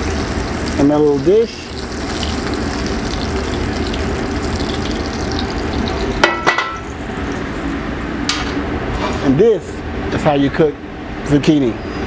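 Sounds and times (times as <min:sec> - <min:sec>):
frying sizzle: 0:00.0 - 0:07.8
skillet clanking on metal grate: 0:06.2 - 0:06.8.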